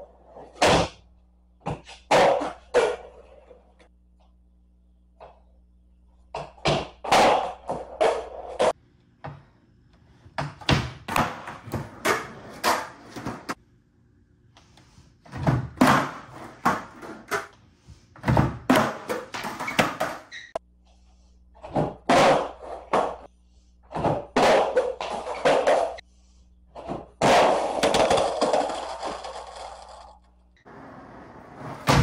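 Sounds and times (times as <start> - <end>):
skateboard rolling on concrete: 11.1 - 13.6, 26.8 - 32.0.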